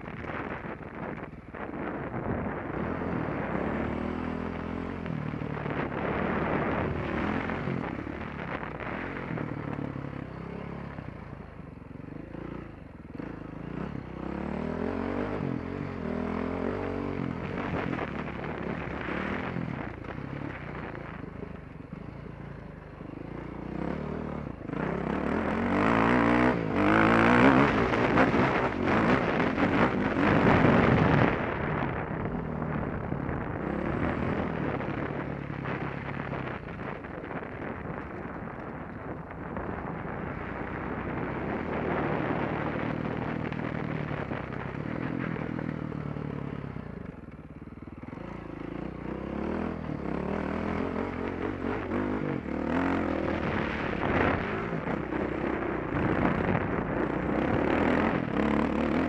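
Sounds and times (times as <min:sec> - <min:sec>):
dirt bike engine revving: 0:23.2 - 0:31.9, 0:48.0 - 0:59.0.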